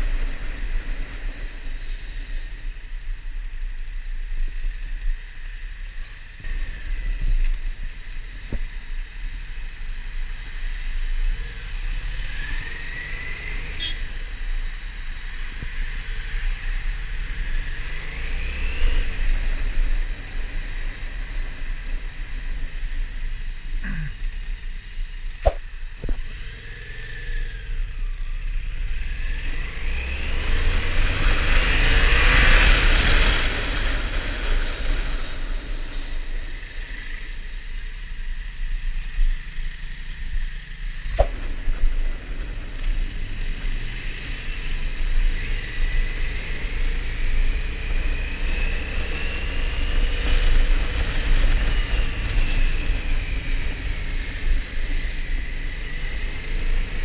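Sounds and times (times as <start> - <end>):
wind rush: 25.4 - 26.2, 41.0 - 41.7.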